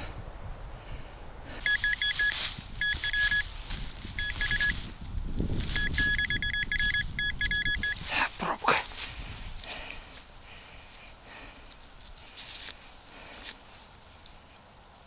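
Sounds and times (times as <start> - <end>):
metal detector short high beeps: 1.6 - 3.5, 4.2 - 4.8, 5.7 - 8.0
footsteps: 1.6 - 13.6.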